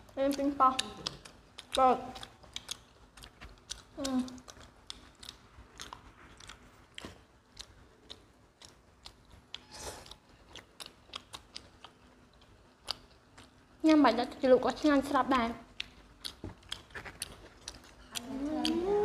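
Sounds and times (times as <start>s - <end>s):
wet mouth clicks: 0.3s - 13.6s, 15.8s - 18.9s
chewing and biting pizza: 0.3s - 13.7s, 15.8s - 19.0s
person humming: 18.1s - 19.0s.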